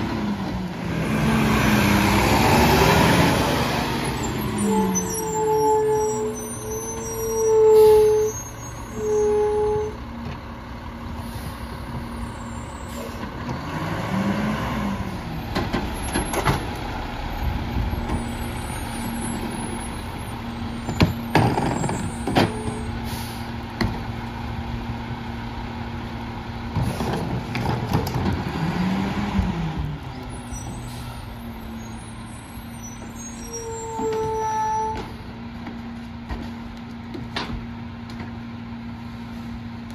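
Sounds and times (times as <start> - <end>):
garbage truck engine revving: 0.0 - 6.2, 12.9 - 22.4, 25.3 - 30.2.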